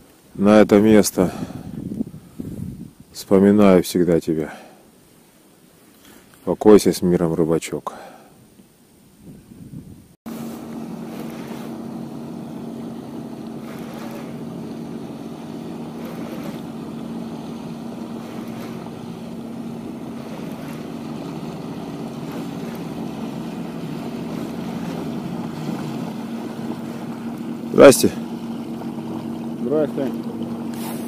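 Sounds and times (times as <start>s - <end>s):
wind: 0.0s - 31.0s
outboard motor running: 10.3s - 31.0s
water noise: 10.3s - 31.0s.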